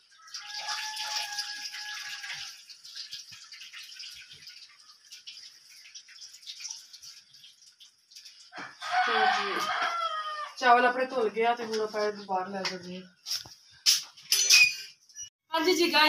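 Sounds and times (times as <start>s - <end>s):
water pouring into a sink: 0.0s - 9.0s.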